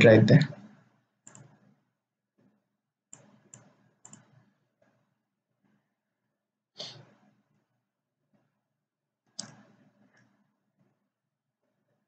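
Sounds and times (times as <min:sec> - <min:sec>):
computer mouse buttons clicking: 0:01.3 - 0:01.6, 0:03.2 - 0:04.4, 0:09.4 - 0:09.6.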